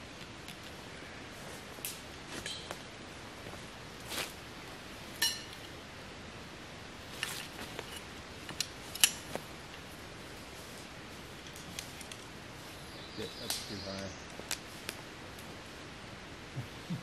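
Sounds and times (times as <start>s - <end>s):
camping gear clicks and clatter: 7.1s - 9.8s.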